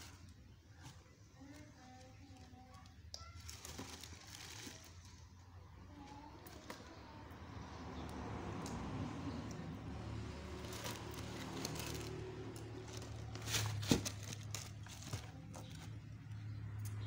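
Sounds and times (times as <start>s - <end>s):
tissue paper rustling: 12.8s - 15.9s.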